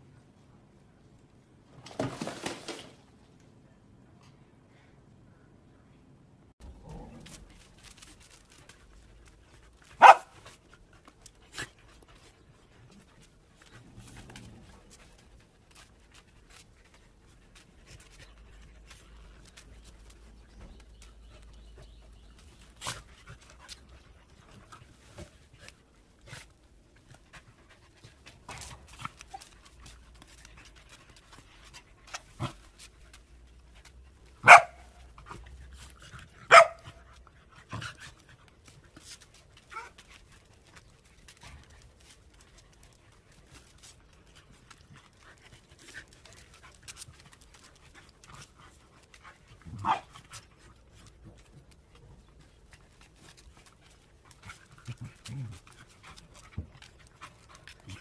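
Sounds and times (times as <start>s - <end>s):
dogs barking: 10.0s - 10.3s, 34.4s - 34.9s, 36.5s - 36.8s.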